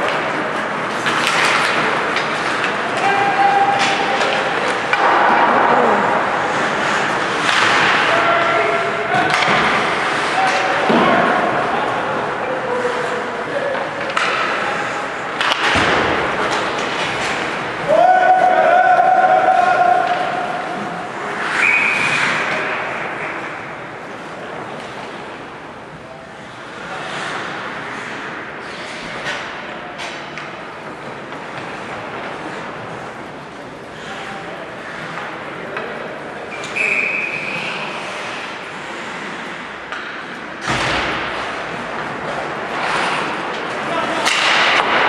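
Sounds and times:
skates scraping on ice: 0:00.0 - 0:25.5, 0:26.4 - 0:29.6, 0:30.8 - 0:45.0
crowd noise: 0:00.0 - 0:45.0
referee's whistle: 0:21.6 - 0:22.2, 0:36.7 - 0:37.6.

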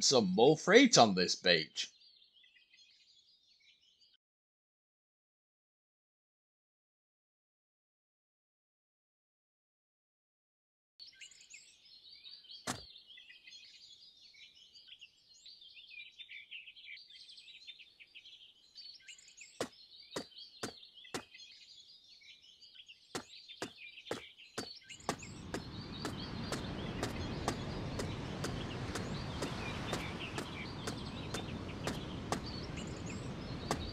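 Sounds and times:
small birds chirping: 0:00.0 - 0:04.2, 0:11.0 - 0:33.9
footstep clicks: 0:24.1 - 0:33.9
sea surf rushing: 0:25.1 - 0:33.9.

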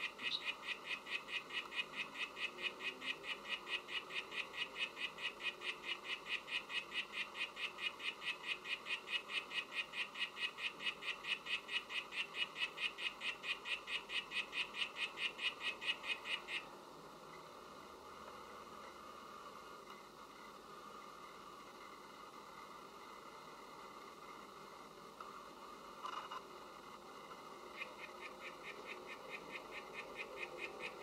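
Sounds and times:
frog chirping: 0:00.0 - 0:16.7, 0:27.7 - 0:31.0.

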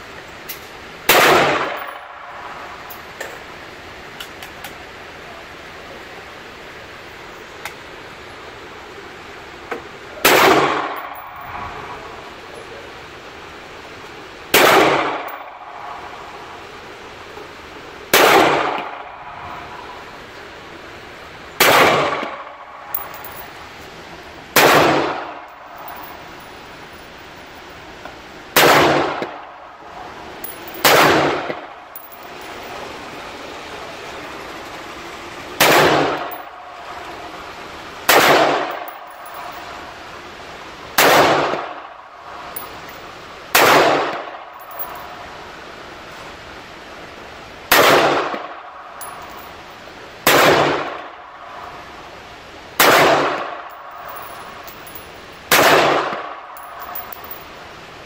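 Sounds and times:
pistol gunshots echoing: 0:10.2 - 0:11.2, 0:14.6 - 0:15.6, 0:24.6 - 0:26.1, 0:28.6 - 0:29.3, 0:30.7 - 0:31.7, 0:38.1 - 0:39.1, 0:43.6 - 0:44.3, 0:55.5 - 0:56.8.

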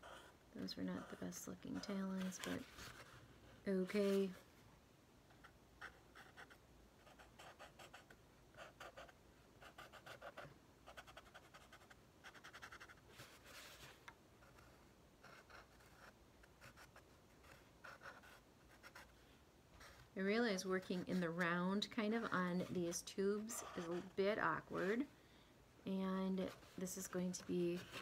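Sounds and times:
marker scratching on cardboard: 0:05.8 - 0:13.4, 0:14.4 - 0:19.1, 0:23.4 - 0:24.2.

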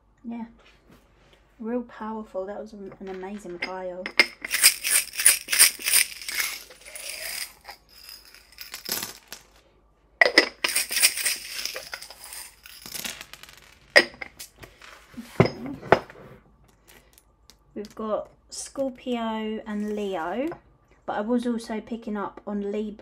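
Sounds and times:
metal charms rattling and clinking: 0:03.6 - 0:09.6, 0:10.2 - 0:14.6.

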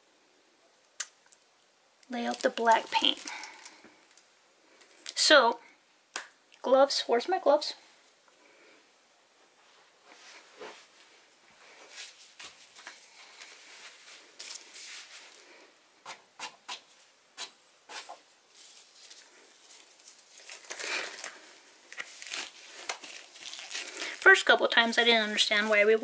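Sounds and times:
hands rustling items: 0:02.1 - 0:04.2, 0:09.5 - 0:15.7, 0:17.9 - 0:26.0.

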